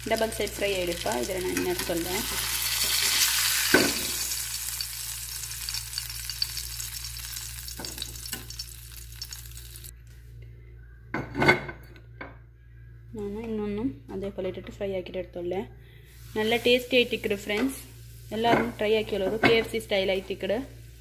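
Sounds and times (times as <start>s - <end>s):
fish sizzling in oil: 0.0s - 9.9s.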